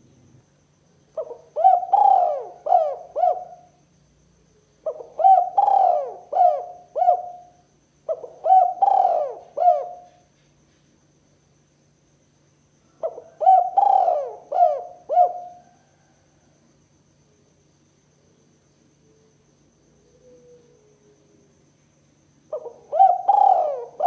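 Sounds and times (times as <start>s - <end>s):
dove cooing: 1.2s - 3.7s, 4.8s - 10.2s, 13.0s - 16.1s, 22.5s - 24.0s.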